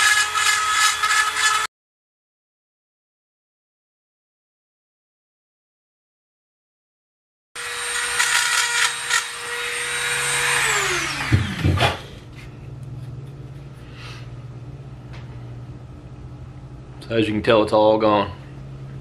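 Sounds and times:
rotary tool grinding bone: 0.0 - 1.7, 7.6 - 11.9
low steady hum: 11.5 - 19.0.

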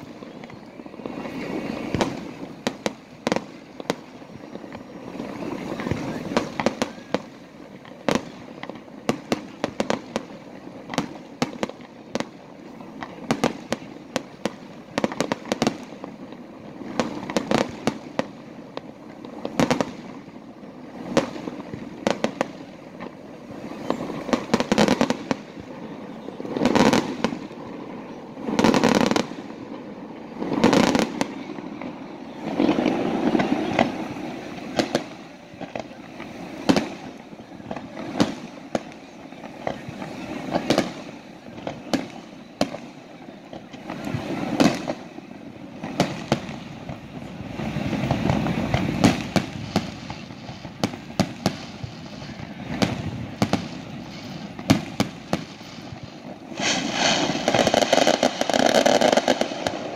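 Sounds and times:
heavy firework booms: 1.0 - 43.0, 43.6 - 59.9
firework shells bursting: 45.8 - 59.9.

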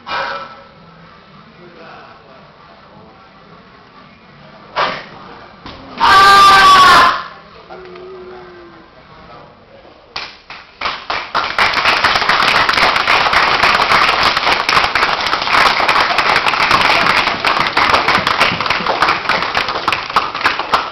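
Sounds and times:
audience applauding: 10.8 - 20.9.

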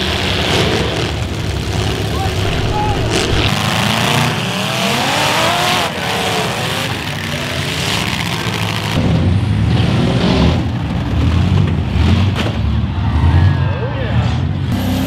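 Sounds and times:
car engines revving: 0.0 - 15.0
deep engine rumble: 1.2 - 4.1
sharp hit: 2.2 - 4.0.

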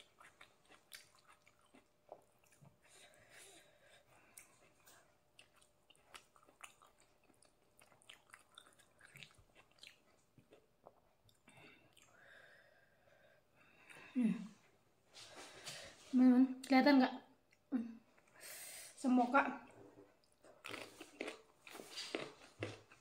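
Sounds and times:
close-up chewing mouth clicks: 0.0 - 2.8, 4.3 - 12.2.

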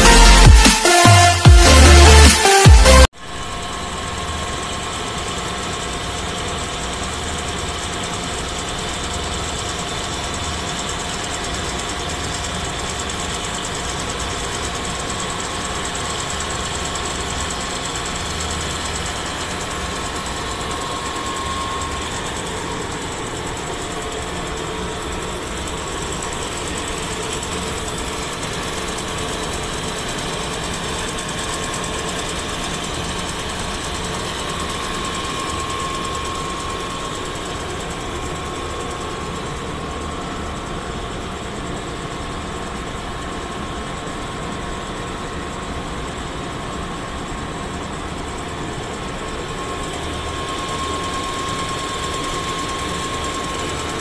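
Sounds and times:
machine cutting steel: 0.0 - 38.4.

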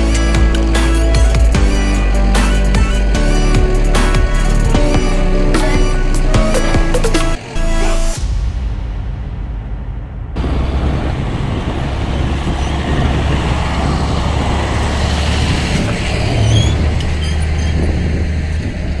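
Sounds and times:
tractor diesel engine passing: 0.0 - 8.2, 10.4 - 19.0
tyre noise: 10.5 - 19.0.

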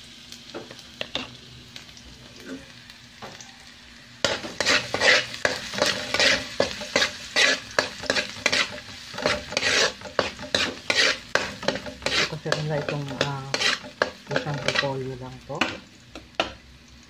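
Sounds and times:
frying sizzle: 0.0 - 17.0
metal spoon scraping a wok: 4.2 - 15.8.

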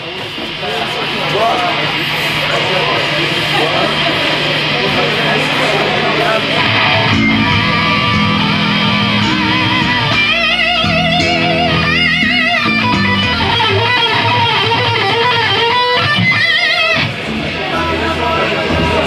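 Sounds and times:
electric guitar with vibrato: 0.0 - 19.0
bass guitar: 3.0 - 19.0.

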